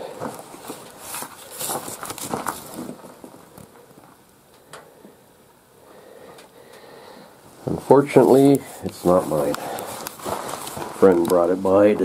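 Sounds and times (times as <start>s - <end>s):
footsteps: 0.0s - 4.2s, 7.5s - 12.0s
rustling handling noise: 0.0s - 4.3s, 7.4s - 12.0s.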